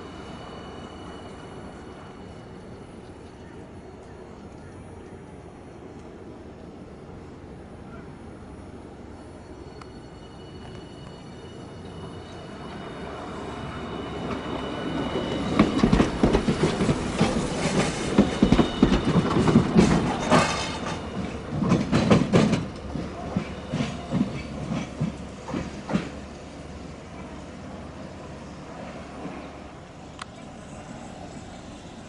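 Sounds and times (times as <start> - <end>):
streetcar wheels clattering on track: 14.2 - 26.3.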